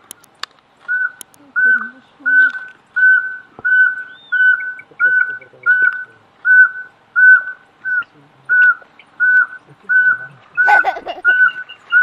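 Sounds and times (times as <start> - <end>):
owl whistled toots: 0.9 - 12.0.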